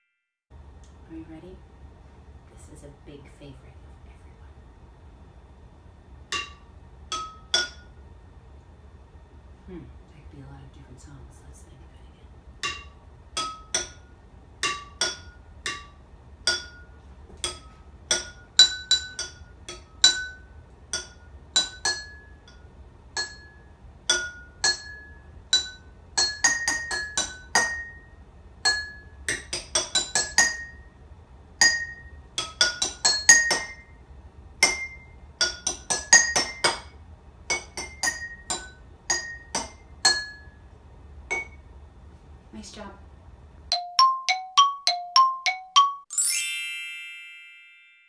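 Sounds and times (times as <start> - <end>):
spoon striking water-filled glass jars: 6.3 - 7.9, 12.6 - 14.0, 14.6 - 28.0, 28.6 - 30.8, 31.6 - 33.9, 34.6 - 36.9, 37.5 - 40.5, 41.3 - 41.6.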